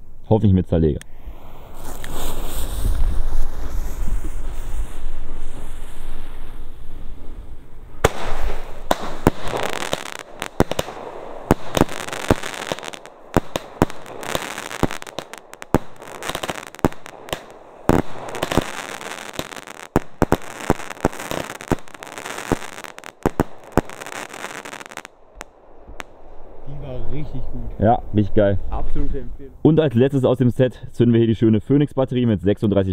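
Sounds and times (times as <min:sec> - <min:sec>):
fireworks banging: 0:01.1 - 0:26.6.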